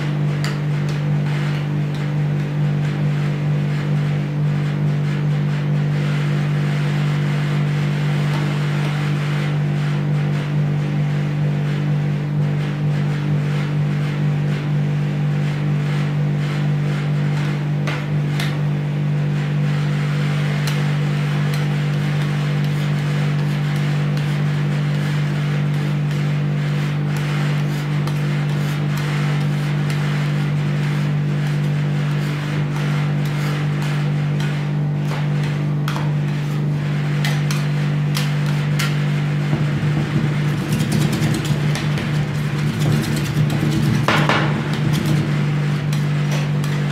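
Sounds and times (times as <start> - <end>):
steady low hum: 0.0 - 46.9
spatula scraping on steel pan: 20.2 - 46.9
metal spatulas scraping steel plate: 39.8 - 46.9.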